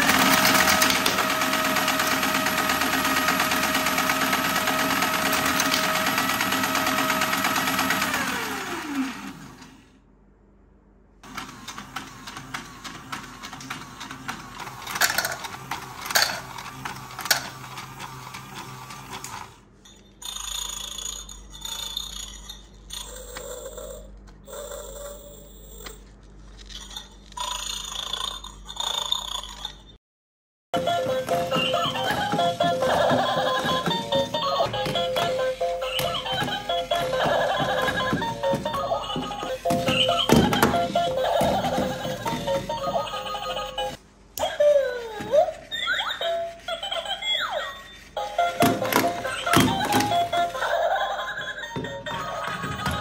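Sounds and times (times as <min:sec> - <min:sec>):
toy electric motor whining: 0:00.0 - 0:09.8, 0:11.4 - 0:30.0, 0:30.8 - 0:53.0
plastic toy parts clicking: 0:13.4 - 0:19.4.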